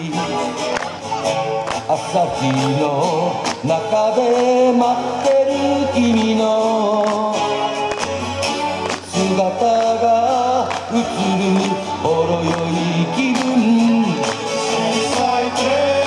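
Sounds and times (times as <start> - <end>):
electric guitar: 0.0 - 16.0
keyboard: 0.0 - 16.0
voices singing together: 9.1 - 16.0.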